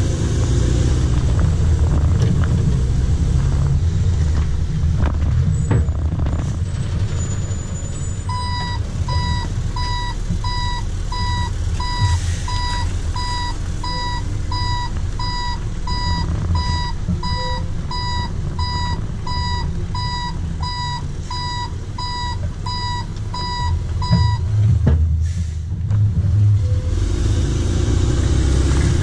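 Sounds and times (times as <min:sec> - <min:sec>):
truck engine running: 0:00.0 - 0:29.0
truck reverse alarm beeping: 0:07.2 - 0:24.5.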